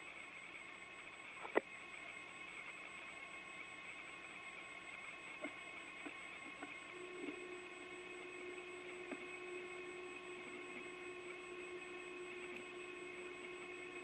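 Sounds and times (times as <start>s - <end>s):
radio channel hiss: 0.0s - 14.0s
faint clicks: 5.4s - 14.0s
low steady tone: 5.4s - 14.0s.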